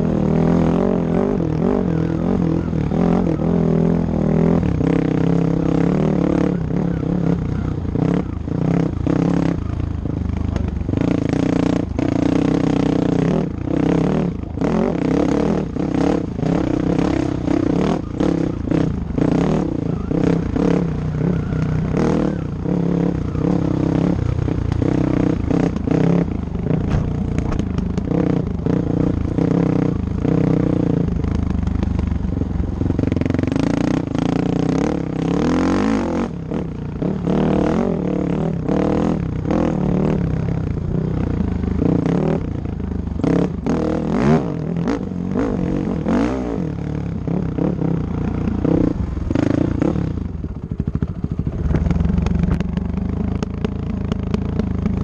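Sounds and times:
motorcycle engine revving: 0.0s - 55.0s
bike clattering and scraping: 26.8s - 28.1s.

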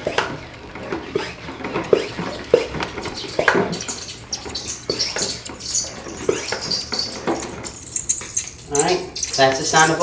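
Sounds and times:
oil gurgling and spitting: 2.0s - 10.0s.

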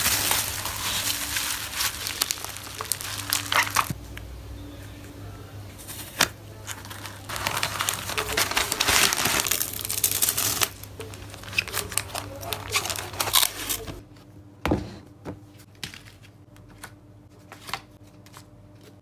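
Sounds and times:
plastic mailer bag crinkling: 0.0s - 4.0s, 5.8s - 14.0s
bubble wrap crinkling: 0.0s - 4.2s, 5.8s - 14.0s.

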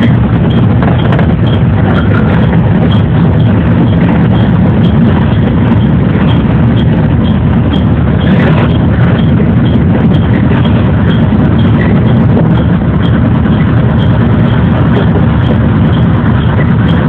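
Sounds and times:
electric train rumbling: 0.0s - 17.0s.

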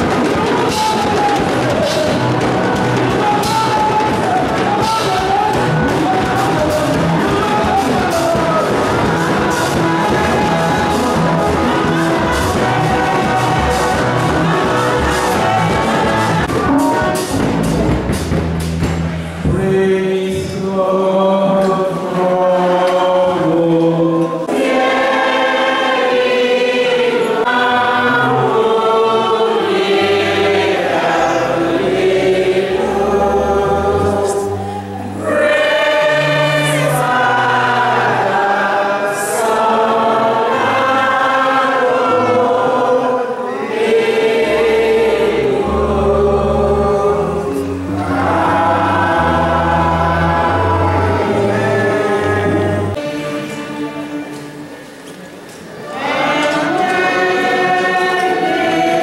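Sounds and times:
church choir singing: 0.0s - 18.2s, 19.5s - 59.0s
low held bass notes: 1.5s - 20.4s, 44.4s - 54.1s.

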